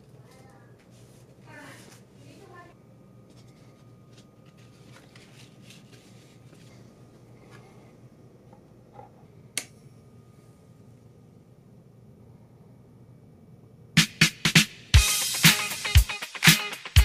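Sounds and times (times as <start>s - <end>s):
paper and vinyl rustling: 0.2s - 2.6s, 3.2s - 7.8s.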